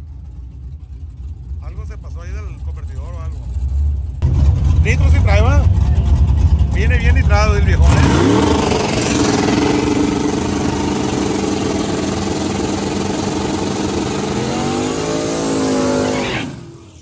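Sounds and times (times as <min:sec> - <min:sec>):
racing car engine accelerating: 0:04.2 - 0:17.0.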